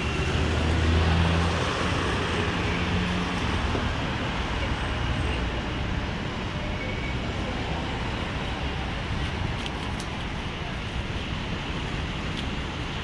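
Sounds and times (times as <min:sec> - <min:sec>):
passing vehicle engine hum: 0:00.0 - 0:05.1
traffic noise: 0:00.0 - 0:13.0.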